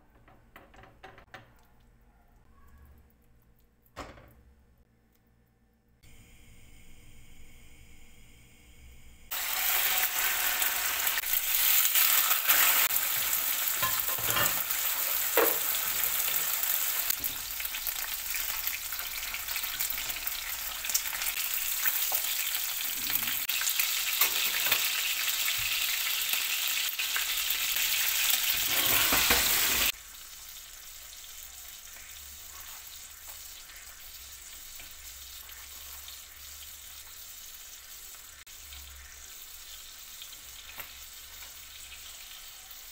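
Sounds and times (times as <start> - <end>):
meat sizzling in oil: 9.3 - 42.9.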